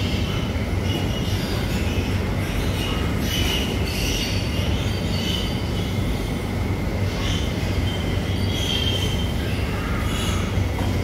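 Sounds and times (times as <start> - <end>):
low machine hum: 0.0 - 11.0.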